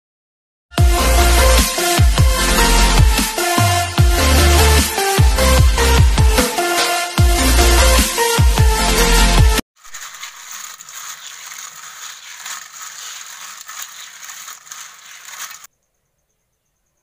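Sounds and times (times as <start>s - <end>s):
snail shells rubbing in water: 9.8s - 15.7s.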